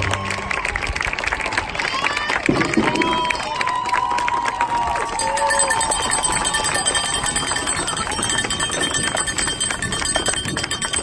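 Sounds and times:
crowd cheering and clapping: 0.0 - 11.0
cowbells ringing: 5.1 - 11.0.

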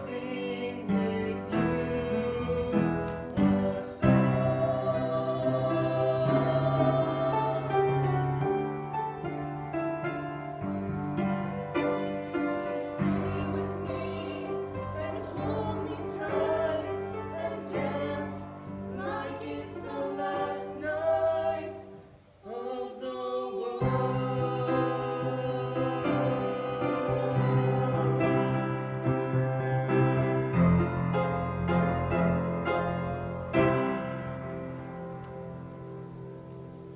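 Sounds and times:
man and woman singing duet: 0.0 - 8.5, 12.4 - 29.0
held accompaniment chords: 0.0 - 22.2.

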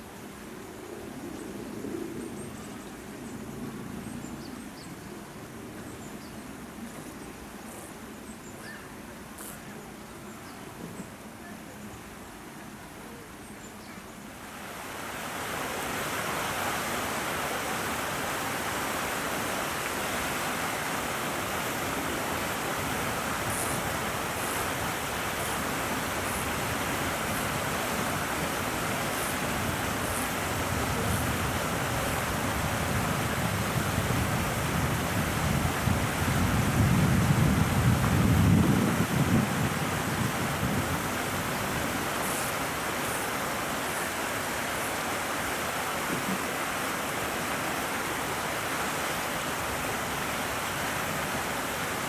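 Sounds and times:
wind on microphone: 21.2 - 42.9.

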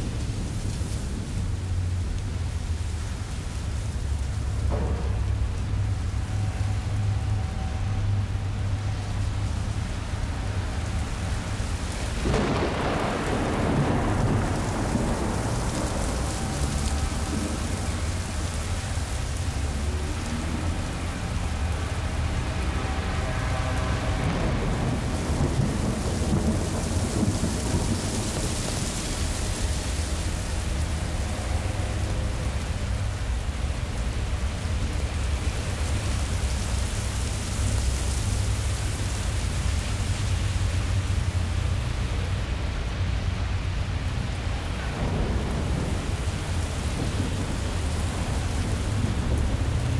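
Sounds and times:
steady rain: 0.0 - 49.9
thunder rumbling: 0.0 - 49.9
wind gusts: 0.0 - 49.9.

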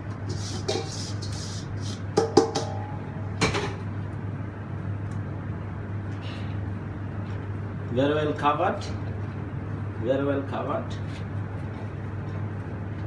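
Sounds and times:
steady low hum: 0.0 - 13.0
cure mix hissing from bowl: 0.2 - 2.2
metal bowl knocked ringing: 2.2 - 3.0.

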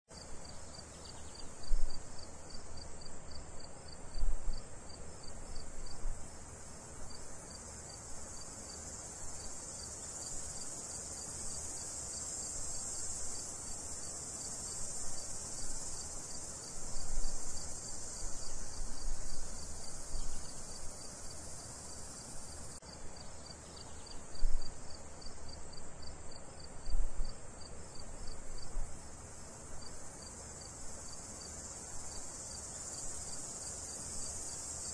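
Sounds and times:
high hiss: 0.2 - 34.9
insects trilling: 0.2 - 34.9.

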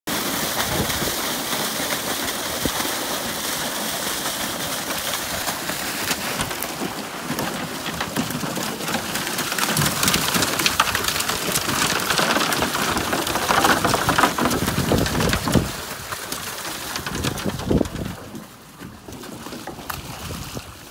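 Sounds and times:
fish sliding down plastic chute: 0.1 - 20.9
water gushing and splashing: 0.1 - 20.9.

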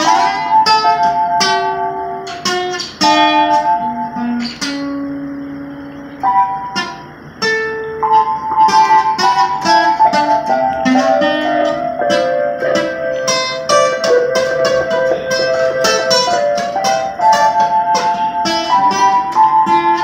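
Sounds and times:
acoustic guitar plucking: 0.0 - 20.0
electronic keyboard notes: 0.0 - 20.0.

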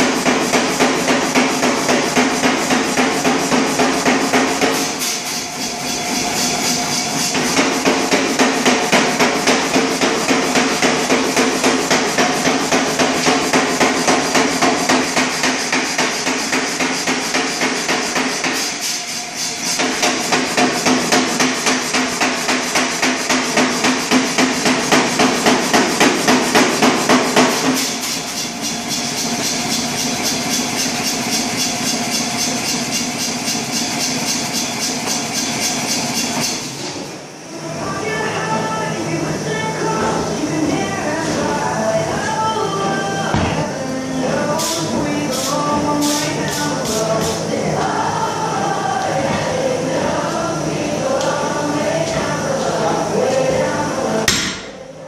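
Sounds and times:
air hammer pounding hot steel: 0.0 - 36.8, 43.3 - 48.0, 53.8 - 54.8.

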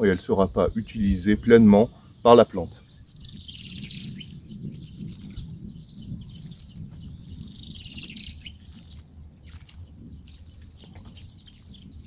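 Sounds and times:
songbird singing: 0.0 - 12.0
water pouring onto soil: 3.5 - 12.0.

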